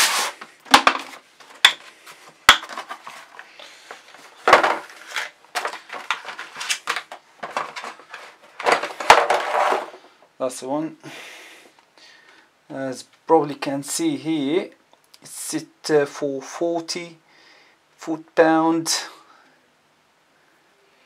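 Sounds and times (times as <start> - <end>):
cardboard and paper rustling: 0.0 - 10.1
plastic case clattering: 0.7 - 1.9, 2.5 - 10.0.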